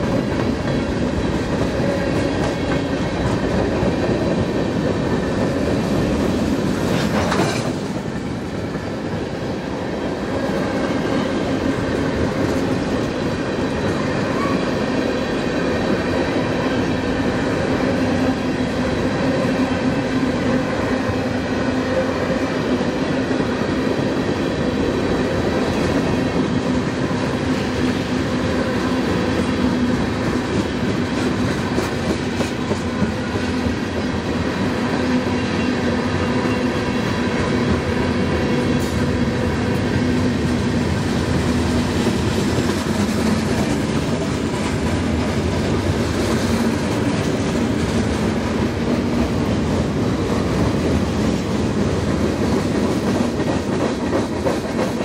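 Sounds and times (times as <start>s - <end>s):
freight train wheels clattering: 0.0s - 9.3s, 29.0s - 55.0s.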